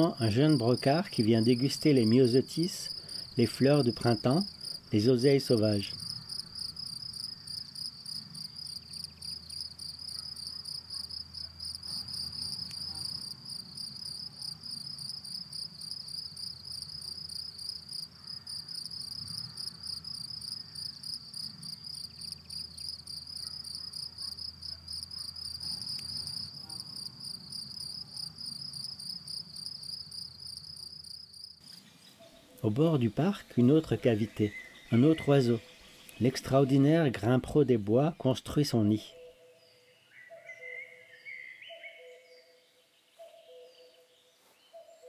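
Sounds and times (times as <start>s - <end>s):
cricket chirping: 0.0s - 32.6s.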